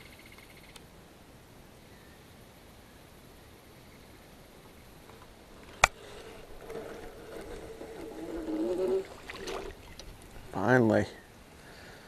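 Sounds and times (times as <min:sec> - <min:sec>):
fishing reel whirring: 0:05.5 - 0:10.3.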